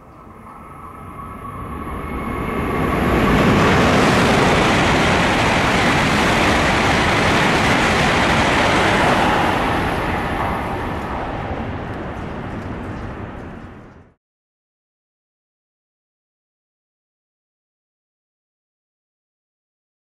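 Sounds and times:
bullet train rushing past: 0.0 - 14.2.

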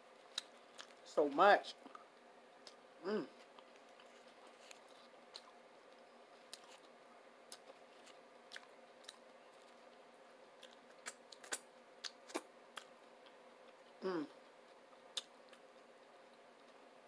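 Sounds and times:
faint steady hum: 0.0 - 17.0
wet chewing and mouth smacks: 0.3 - 1.0, 3.4 - 5.6, 6.4 - 10.0, 10.6 - 16.8.

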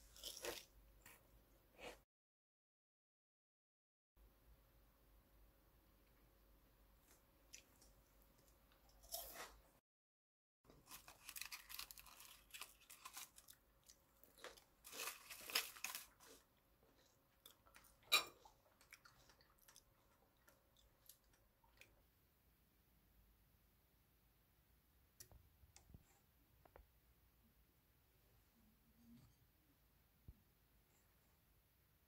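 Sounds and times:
foil wrapper crinkling: 10.8 - 13.6, 14.8 - 16.4.

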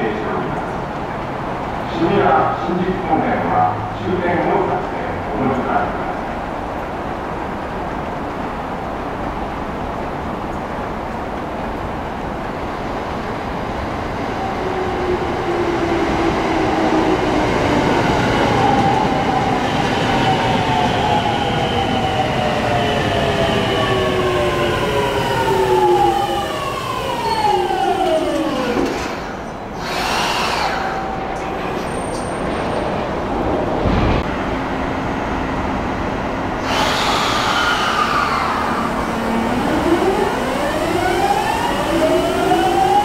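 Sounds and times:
electric train braking: 25.0 - 32.5, 36.6 - 43.0.

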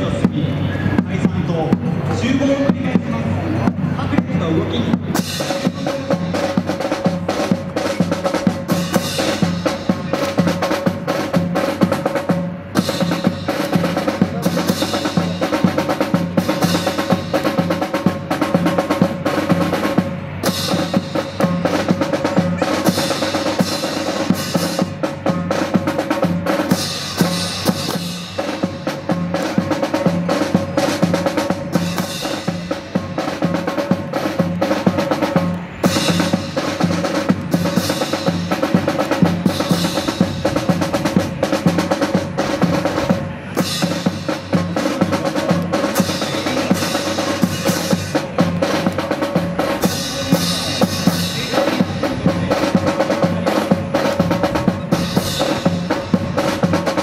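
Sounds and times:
marching snare and bass drum: 0.0 - 57.0.

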